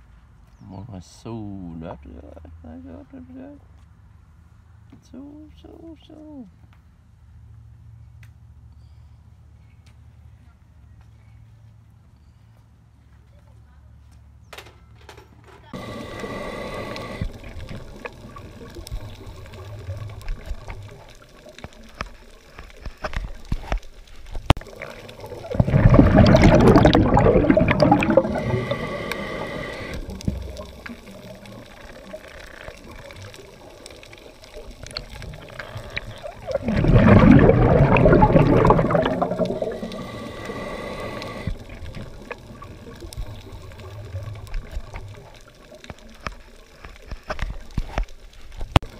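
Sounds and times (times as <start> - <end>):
regulator inhale hiss: 15.8 - 17.7, 28.0 - 31.3, 39.4 - 41.8
exhaled bubbles rushing underwater: 15.8 - 22.3, 24.5 - 46.1.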